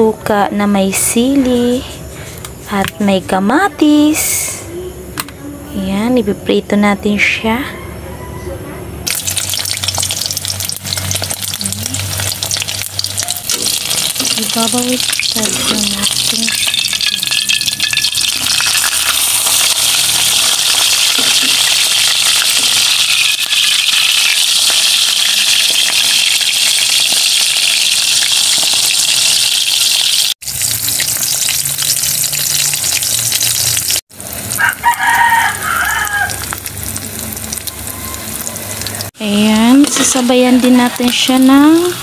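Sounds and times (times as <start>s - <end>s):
rooster crowing: 7.5s - 8.9s, 34.5s - 36.6s, 37.7s - 39.1s
metal spatula turning food: 9.1s - 25.6s, 35.8s - 41.6s
fish sizzling in oil: 9.1s - 42.0s.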